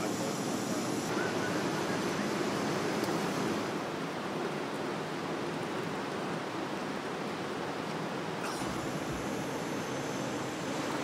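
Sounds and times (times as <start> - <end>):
gas stove burner hissing: 8.4 - 11.0.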